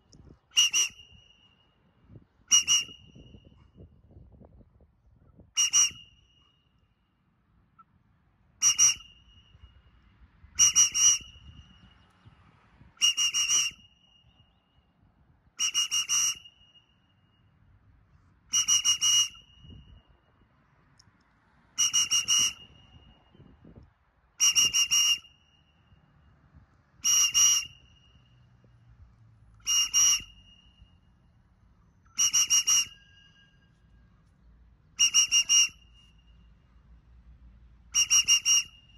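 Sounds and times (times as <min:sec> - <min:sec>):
whistle blasts: 0:00.2 - 0:04.3, 0:05.3 - 0:07.1, 0:08.6 - 0:17.7, 0:18.5 - 0:20.5, 0:21.7 - 0:23.8, 0:24.4 - 0:28.8, 0:29.6 - 0:34.3, 0:34.9 - 0:37.0, 0:37.9 - 0:38.9.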